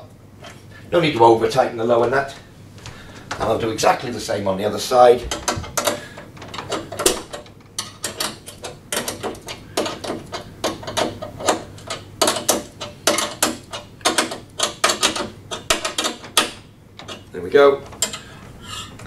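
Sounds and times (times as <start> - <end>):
spanner clicking on nut: 5.3 - 17.3, 17.9 - 18.2.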